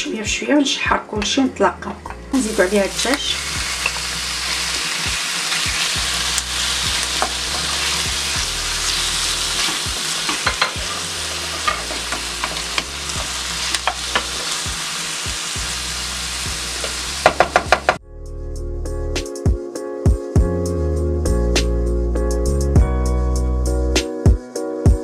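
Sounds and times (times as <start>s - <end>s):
food sizzling in hot oil: 2.3s - 18.0s
wooden spoon scraping and knocking pan: 9.6s - 14.6s.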